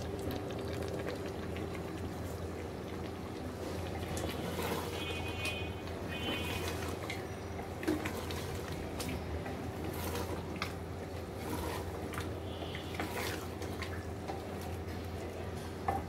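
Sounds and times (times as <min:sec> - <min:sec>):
spatula stirring thick curry: 0:03.6 - 0:08.9, 0:09.5 - 0:13.7.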